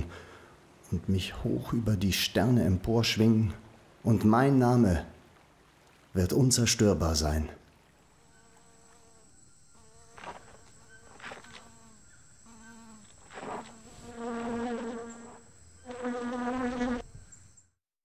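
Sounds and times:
fly buzzing: 8.0s - 17.5s.

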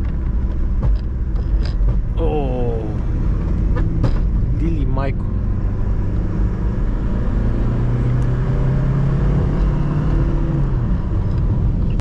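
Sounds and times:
car engine running: 0.0s - 12.0s
road and tyre rumble: 0.0s - 12.0s.

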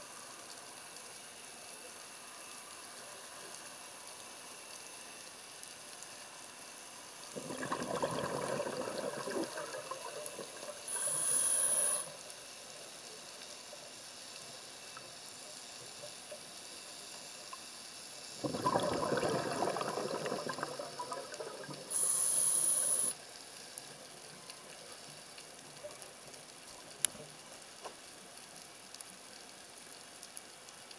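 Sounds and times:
underwater exhaled breath bubbles: 7.3s - 12.2s, 18.4s - 23.1s
regulator whistling hiss: 10.9s - 12.2s, 21.9s - 23.2s.

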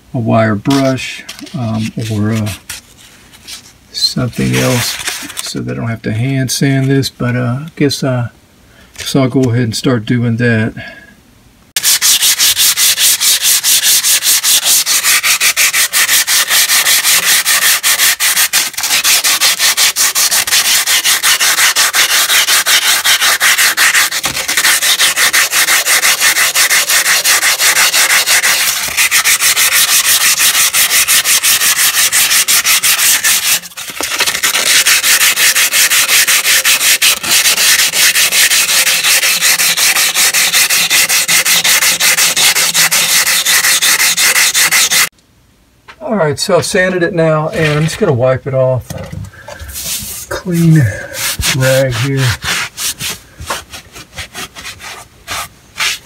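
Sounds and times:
sandpaper rubbing on metal pipe: 4.3s - 5.4s, 11.8s - 45.1s, 47.5s - 48.0s, 49.6s - 56.0s.

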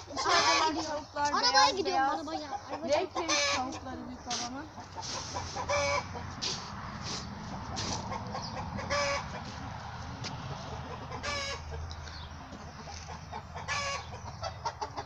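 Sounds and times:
chickens clucking: 0.0s - 15.0s
chicken squawks: 4.9s - 9.6s, 10.6s - 11.8s, 12.8s - 15.0s.

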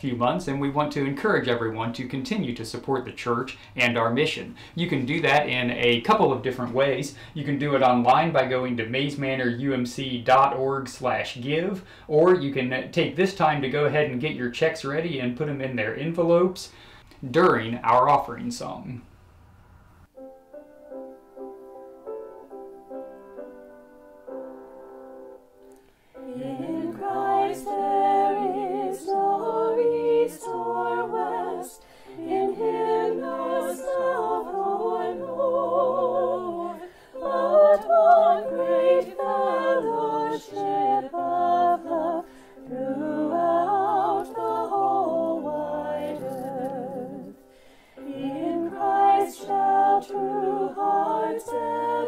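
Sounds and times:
group singing a hymn: 26.2s - 52.0s.

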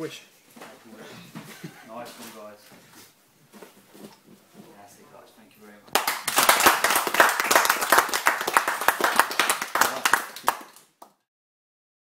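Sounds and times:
small group clapping: 5.9s - 11.2s.

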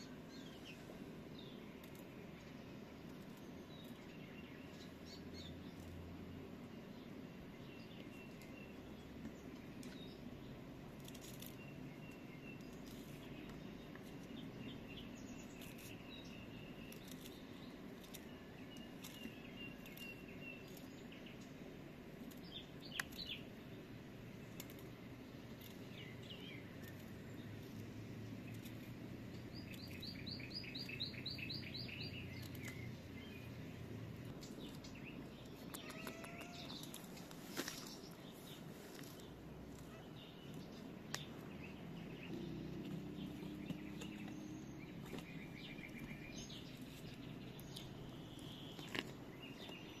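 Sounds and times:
faint background noise: 0.0s - 50.0s
small birds chirping: 0.0s - 50.0s
plant stalks snapping: 16.8s - 17.4s, 24.5s - 24.9s
bird trill: 29.5s - 33.4s, 35.0s - 37.0s.

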